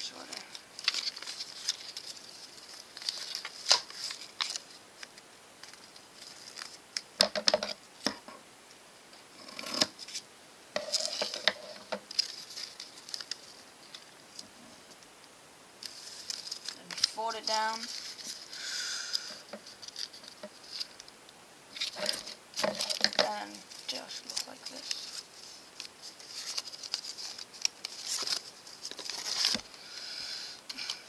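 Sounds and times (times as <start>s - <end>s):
paper rustling and crinkling: 0.0s - 8.2s, 10.8s - 15.0s, 15.8s - 21.1s, 21.7s - 29.8s.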